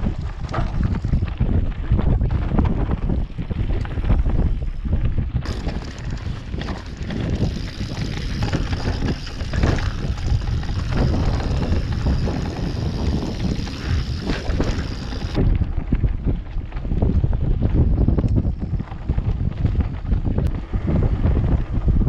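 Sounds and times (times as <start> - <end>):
bike knocks and rattles: 0.0 - 20.4
tyre noise on dirt: 0.0 - 22.0
wind buffeting microphone: 0.0 - 22.0.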